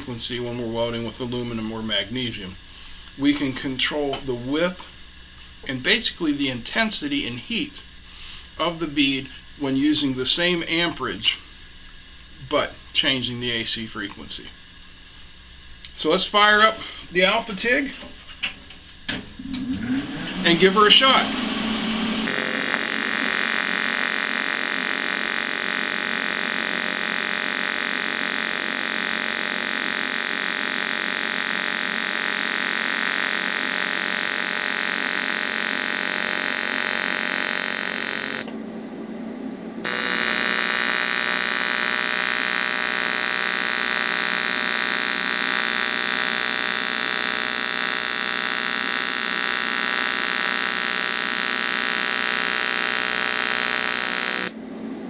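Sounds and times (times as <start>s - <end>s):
welding arc buzzing hum: 0.0s - 55.0s.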